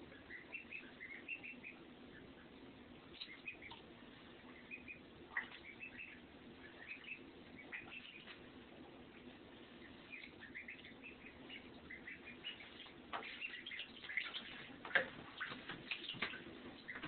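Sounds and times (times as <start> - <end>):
ducklings peeping: 0.0 - 17.0
water splashes and knocks: 13.1 - 17.0.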